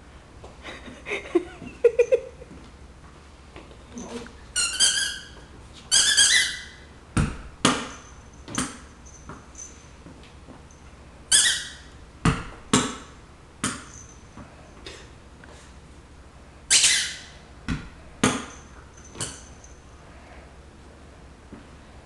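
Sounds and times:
ball bouncing on hard floor: 7.2s - 10.6s, 12.2s - 14.5s, 17.6s - 19.7s.

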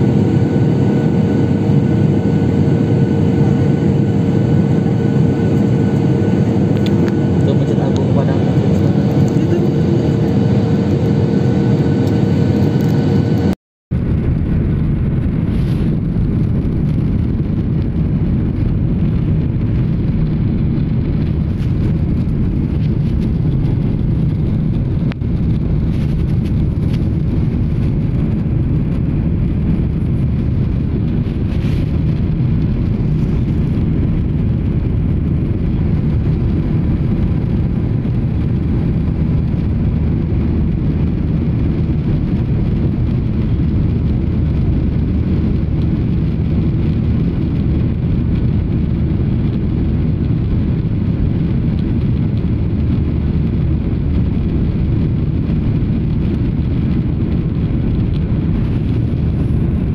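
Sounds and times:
steady engine tones: 0.0s - 13.6s
jet cabin engine roar: 0.0s - 59.9s.

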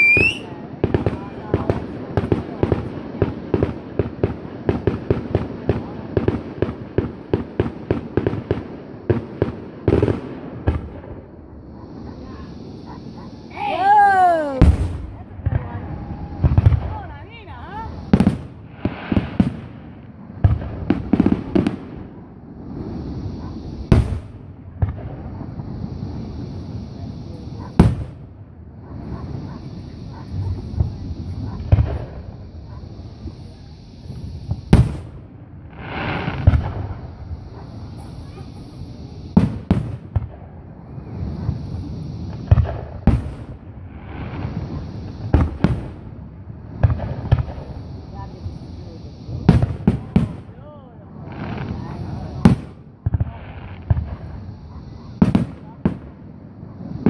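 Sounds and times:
firework shells bursting: 0.0s - 28.4s.

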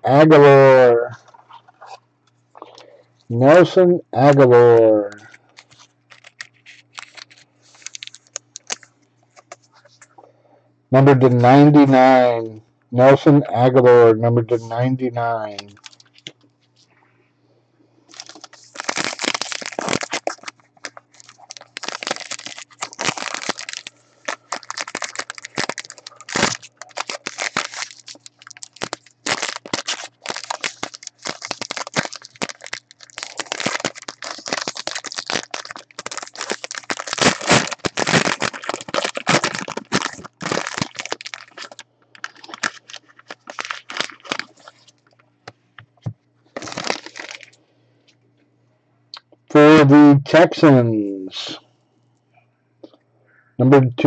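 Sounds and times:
foil wrapper crinkling: 5.1s - 9.8s, 15.5s - 16.3s, 18.1s - 45.2s, 46.5s - 47.6s.

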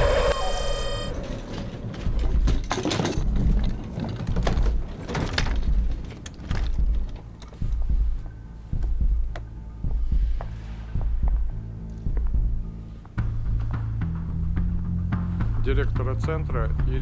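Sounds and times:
electronic tone: 0.0s - 1.4s
mechanical clanks and rattles: 1.1s - 7.9s.

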